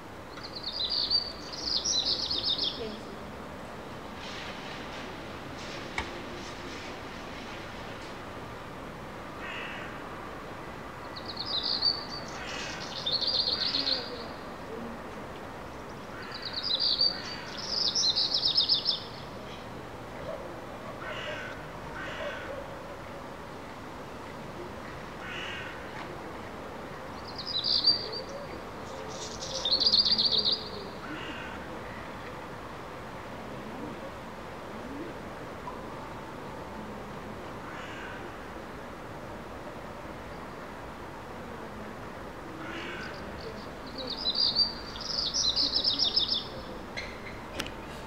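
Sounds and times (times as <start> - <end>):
songbird trilling: 43.9 - 47.4.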